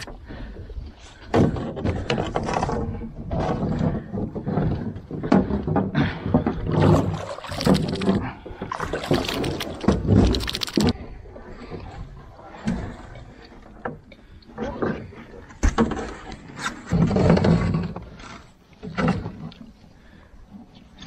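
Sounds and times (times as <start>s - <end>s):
water splashing against boat: 6.5s - 20.2s.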